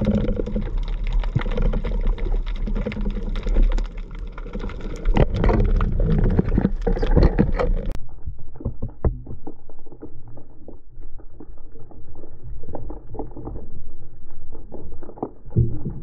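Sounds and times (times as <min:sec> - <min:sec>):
underwater rush of water: 0:00.0 - 0:08.0.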